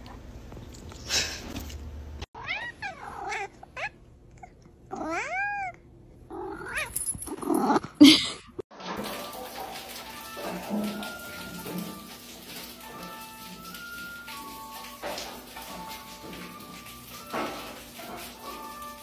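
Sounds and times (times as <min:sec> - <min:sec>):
cat meowing and yowling: 0:02.4 - 0:03.9, 0:04.9 - 0:05.8.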